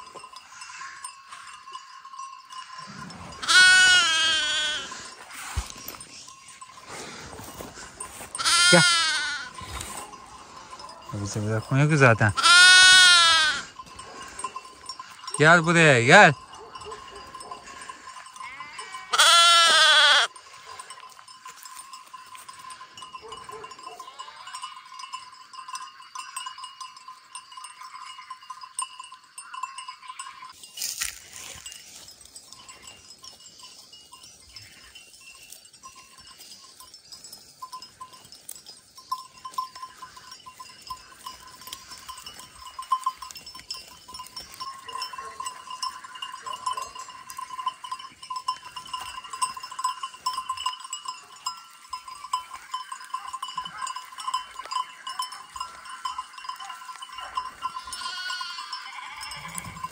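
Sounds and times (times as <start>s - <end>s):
sheep bleating: 2.8s - 5.1s, 8.3s - 10.0s, 12.0s - 13.7s, 17.7s - 20.3s, 57.5s - 59.9s.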